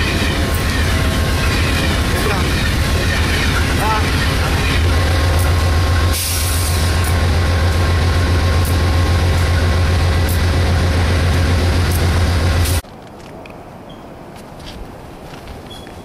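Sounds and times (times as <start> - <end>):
diesel locomotive humming: 0.0 - 12.8
faint outdoor ambience: 9.8 - 16.0.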